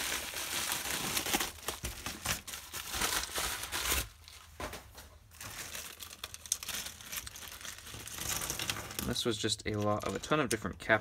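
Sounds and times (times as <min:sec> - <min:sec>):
plastic bags crinkling: 0:00.0 - 0:10.7.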